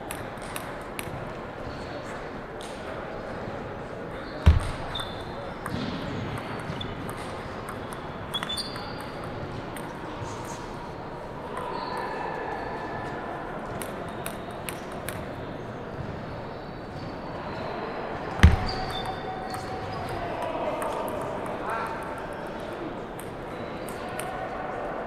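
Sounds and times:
loud table tennis serve hit: 0:04.4 - 0:09.2, 0:18.4 - 0:20.2.

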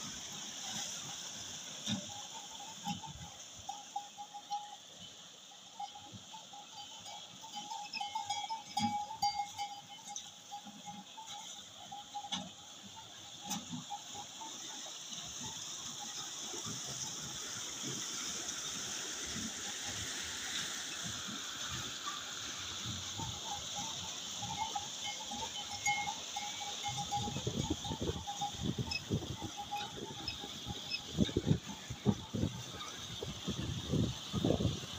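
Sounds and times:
thin squeak: 0:23.2 - 0:31.5.

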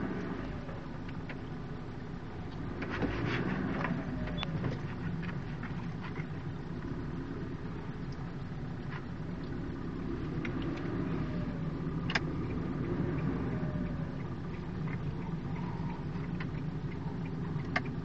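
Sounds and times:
car engine and road rumble: 0:00.0 - 0:18.0
sharp clicks and rattles: 0:14.2 - 0:18.0.

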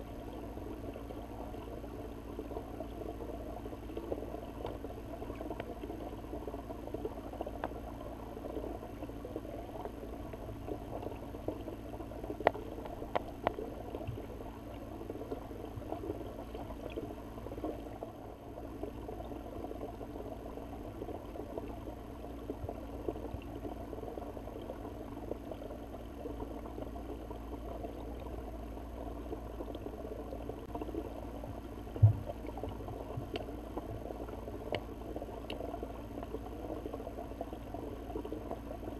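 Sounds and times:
loud low thump: 0:32.0 - 0:32.3.

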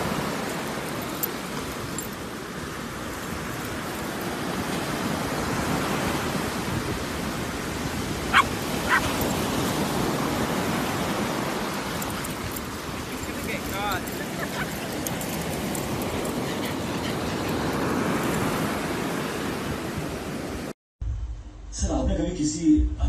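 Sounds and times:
surf breaking on a beach: 0:00.0 - 0:20.7
dog barking: 0:08.3 - 0:09.4.

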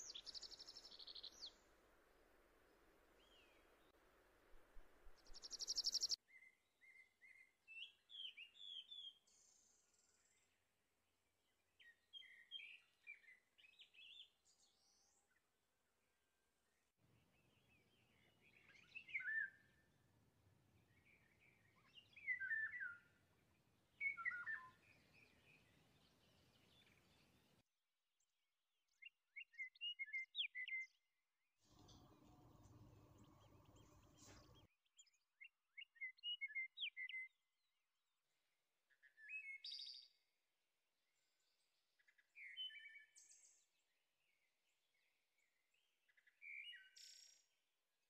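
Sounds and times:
small birds chirping: 0:00.0 - 0:01.8, 0:02.6 - 0:04.0, 0:04.9 - 0:10.6, 0:11.5 - 0:15.4, 0:16.6 - 0:19.9, 0:20.8 - 0:27.6, 0:31.6 - 0:37.4, 0:38.9 - 0:40.2, 0:41.2 - 0:47.6
low hum: 0:31.7 - 0:34.7.

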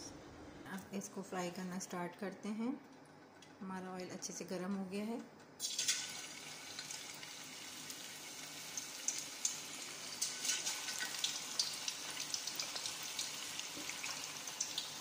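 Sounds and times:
oil sizzling with crackles: 0:05.6 - 0:15.0.

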